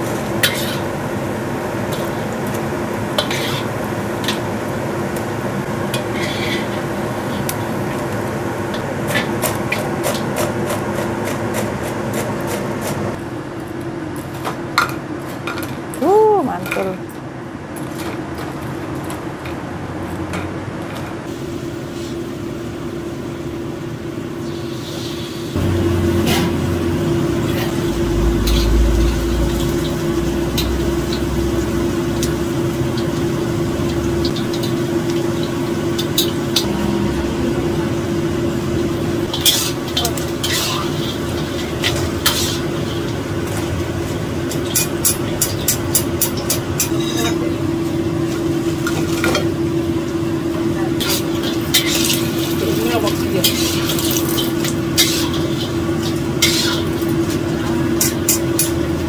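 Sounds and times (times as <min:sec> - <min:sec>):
food deep-frying in oil: 0:00.0 - 0:13.3, 0:21.2 - 0:59.0
steady hum: 0:25.5 - 0:53.4
utensils knocking against a wok: 0:44.5 - 0:47.4, 0:58.0 - 0:58.9.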